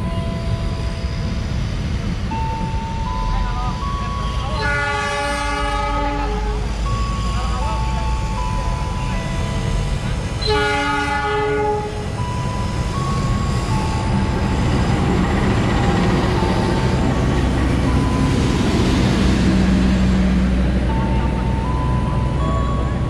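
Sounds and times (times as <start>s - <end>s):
train wheels on rails: 0.0s - 23.0s
train horn: 4.3s - 6.7s, 10.4s - 12.1s.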